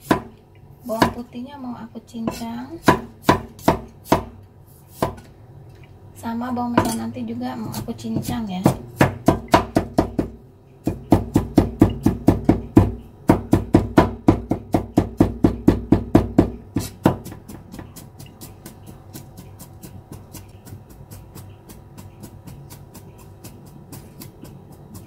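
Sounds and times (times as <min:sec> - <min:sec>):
cleaver chopping on wooden block: 0:02.3 - 0:04.4, 0:10.9 - 0:25.0.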